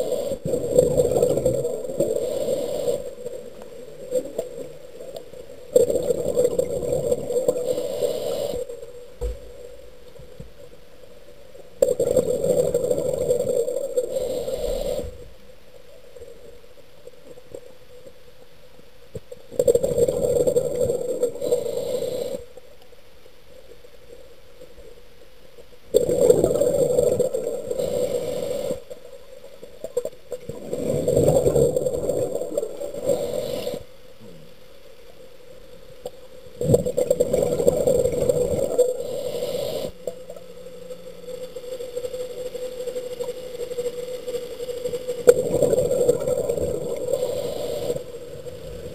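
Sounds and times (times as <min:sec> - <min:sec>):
diver breathing underwater: 0:00.0 - 0:04.8, 0:05.8 - 0:09.0, 0:11.9 - 0:15.3, 0:19.6 - 0:22.6, 0:26.0 - 0:29.0, 0:30.5 - 0:33.9, 0:36.6 - 0:40.2, 0:45.4 - 0:48.9.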